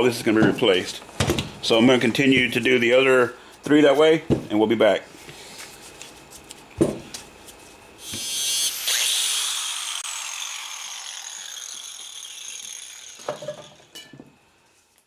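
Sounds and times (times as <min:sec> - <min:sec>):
angle grinder whining: 0:08.0 - 0:14.0.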